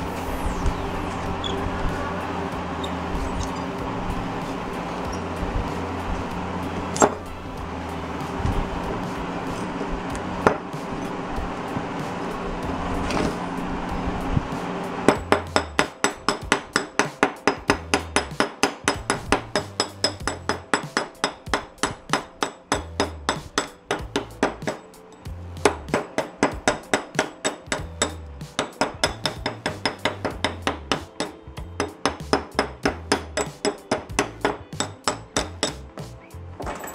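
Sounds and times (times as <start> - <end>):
chipping hammer striking metal: 15.1 - 35.8.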